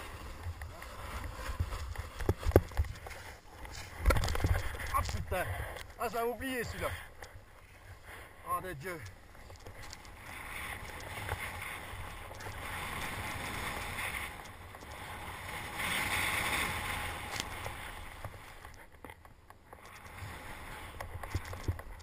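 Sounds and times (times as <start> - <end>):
small clicks: 8.9 - 11.4.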